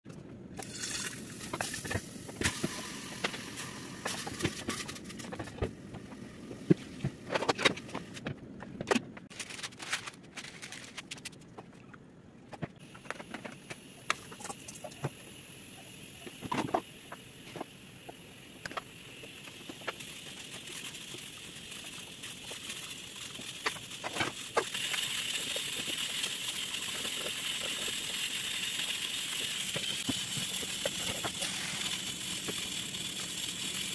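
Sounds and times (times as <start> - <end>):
garlic sizzling in oil: 13.8 - 33.9.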